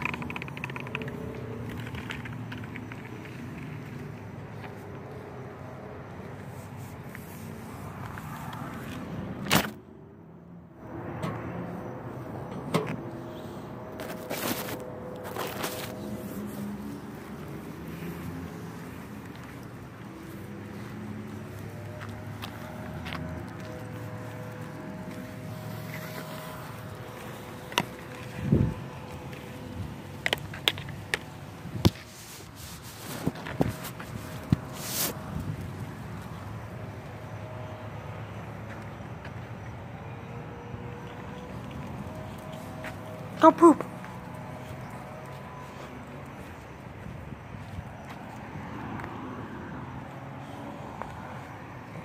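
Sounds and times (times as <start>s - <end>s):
sharp clicks and knocks: 0.0s - 3.4s
rubbing on phone microphone: 31.9s - 35.2s.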